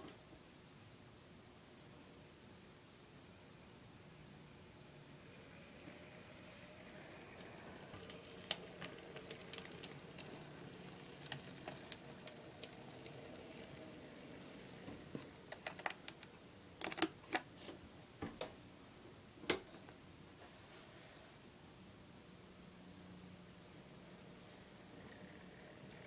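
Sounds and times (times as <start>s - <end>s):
faint steady hum: 0.0s - 26.0s
model train wheels clicking on rails: 5.2s - 17.1s, 23.9s - 26.0s.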